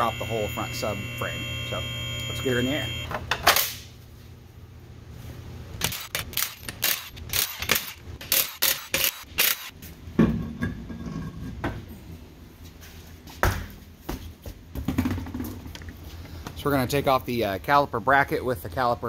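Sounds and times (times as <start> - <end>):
low steady hum: 0.0 - 8.3.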